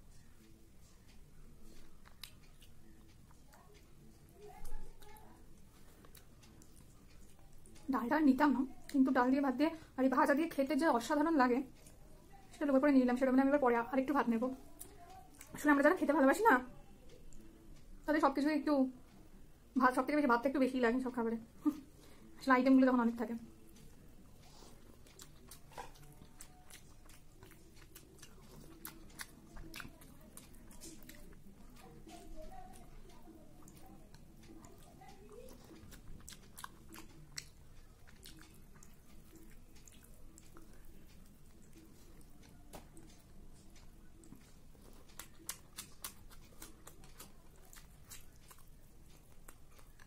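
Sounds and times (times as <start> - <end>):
faint chewing: 0.0 - 50.0
fingers mixing rice on glass plate: 23.7 - 50.0.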